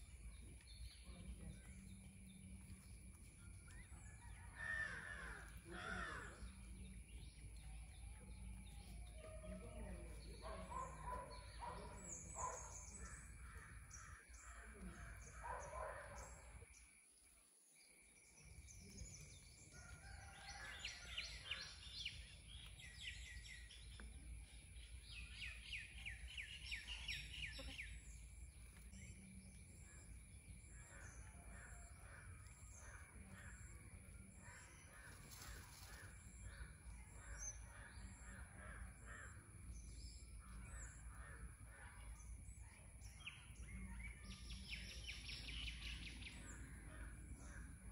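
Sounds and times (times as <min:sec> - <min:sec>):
birds chattering: 0:08.6 - 0:16.4.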